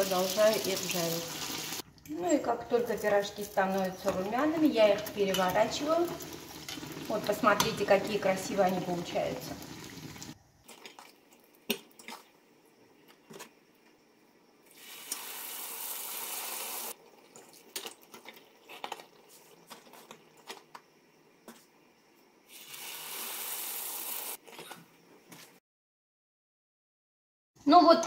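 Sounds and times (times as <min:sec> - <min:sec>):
oil sizzling in a frying pan: 0:00.0 - 0:01.9, 0:02.7 - 0:10.4, 0:14.7 - 0:17.0, 0:22.5 - 0:24.4
metal utensils clicking on a pan: 0:04.9 - 0:05.6.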